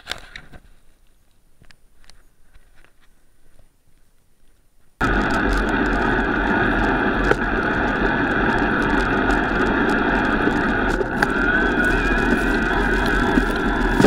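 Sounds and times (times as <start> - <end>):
constant motor whine: 5.0 - 14.0
fat bike tyres rushing in snow: 5.0 - 14.0.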